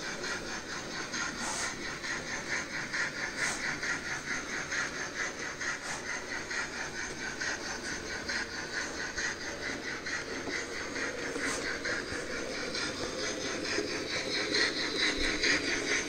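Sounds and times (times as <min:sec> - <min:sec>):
model train running: 0:00.0 - 0:16.0.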